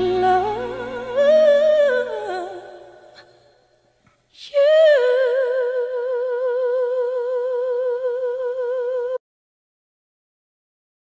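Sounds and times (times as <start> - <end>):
long high sung note with vibrato: 0.0 - 3.1
person singing: 0.0 - 3.5, 4.4 - 9.2.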